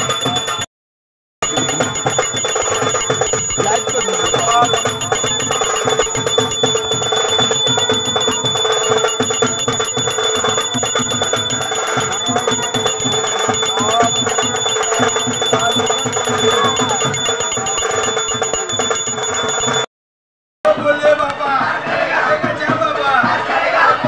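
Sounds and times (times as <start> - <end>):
brass hand bell ringing: 0.0 - 0.7, 1.4 - 19.9.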